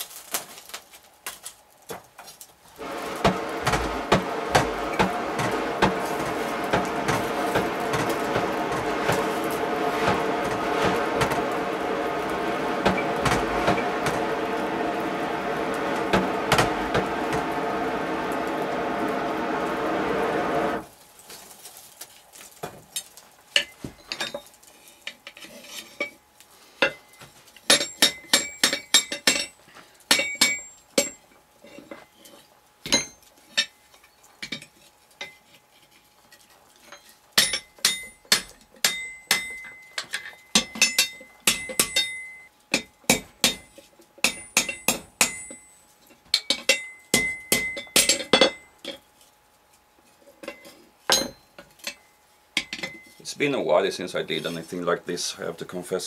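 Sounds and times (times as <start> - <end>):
hammer striking hot iron on anvil: 2.8 - 18.4, 27.7 - 31.2, 32.8 - 33.7, 37.4 - 48.7, 51.1 - 53.1.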